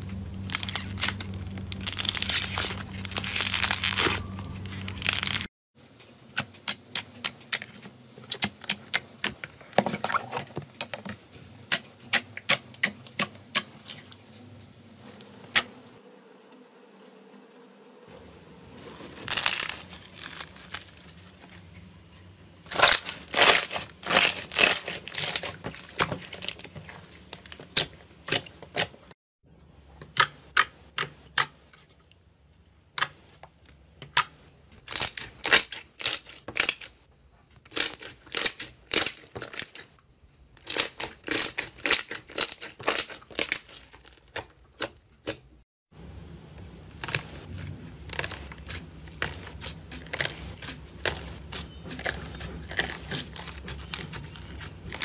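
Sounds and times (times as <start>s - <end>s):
foil crinkling clicks: 0.1s - 5.5s, 19.2s - 21.4s.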